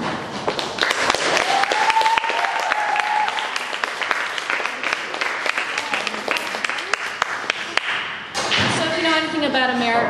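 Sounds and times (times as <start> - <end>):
audience clapping: 0.4 - 8.2
long held cheer: 1.3 - 7.8.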